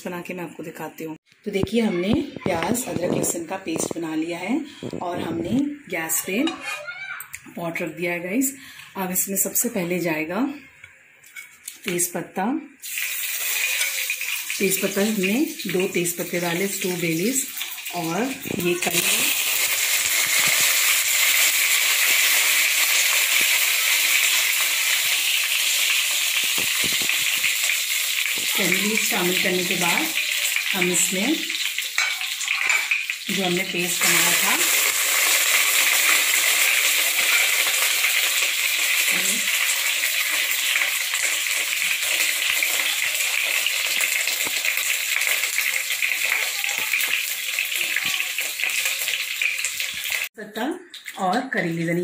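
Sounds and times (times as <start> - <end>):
small crackles: 2.3 - 5.6, 17.5 - 33.2, 34.6 - 50.3
leaves sizzling in hot oil: 12.8 - 50.3.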